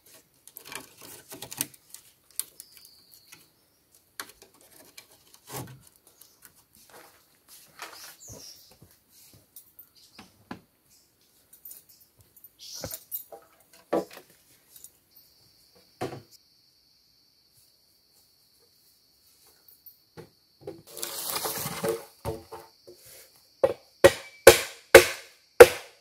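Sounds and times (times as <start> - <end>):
bamboo poles knocking and rustling: 0.0 - 9.5, 12.7 - 14.6, 16.0 - 16.4, 20.2 - 23.0, 23.6 - 26.0
chopping blows: 23.6 - 26.0.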